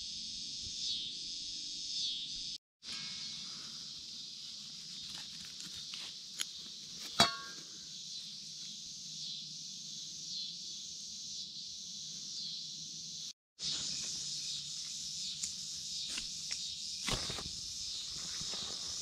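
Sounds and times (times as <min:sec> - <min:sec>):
crickets and insects trilling: 0:00.0 - 0:19.0
sharp metallic clink: 0:07.1 - 0:07.8.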